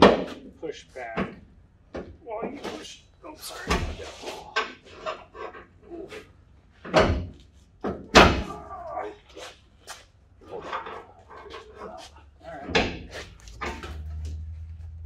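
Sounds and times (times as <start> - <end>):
metal clanks and knocks: 6.8 - 8.6, 12.6 - 15.0.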